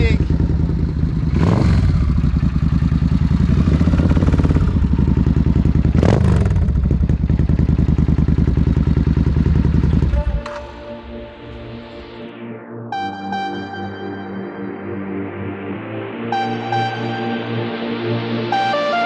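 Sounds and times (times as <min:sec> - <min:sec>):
motorcycle engine idling: 0:00.0 - 0:11.3
motorcycle engine revving: 0:00.0 - 0:11.8.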